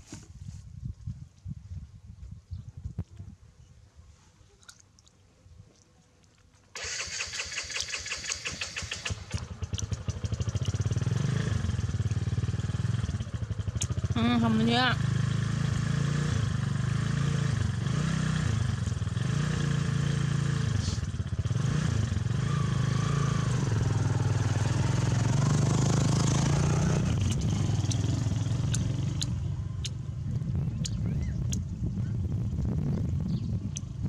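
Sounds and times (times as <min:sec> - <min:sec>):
sharp clicks: 0:06.8 - 0:10.8, 0:13.7 - 0:14.0, 0:27.2 - 0:28.1, 0:28.7 - 0:30.0
engine running with pulse: 0:06.8 - 0:34.0.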